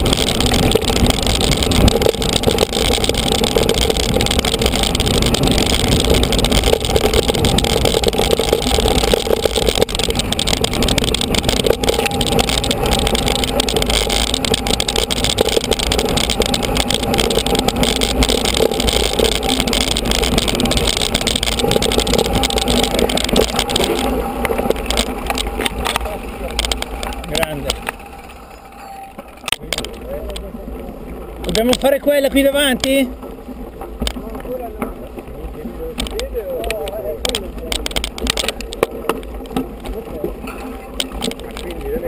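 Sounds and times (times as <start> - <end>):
wind rushing over microphone: 0.0 - 28.4
bike tyres rattling on dirt track: 0.0 - 42.0.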